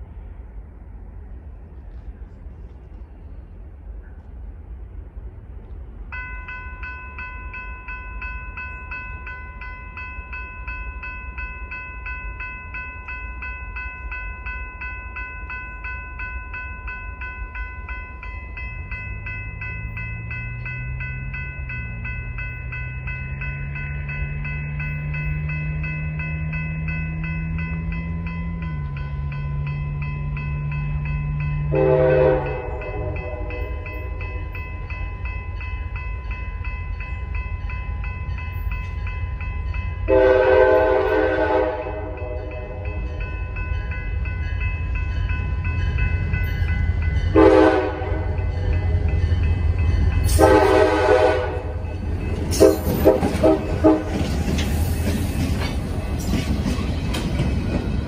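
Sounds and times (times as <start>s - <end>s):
crossing bell ringing: 6.0s - 58.0s
train horn: 31.7s - 34.2s, 40.0s - 43.0s, 47.3s - 48.5s, 50.2s - 51.8s, 52.5s - 54.3s.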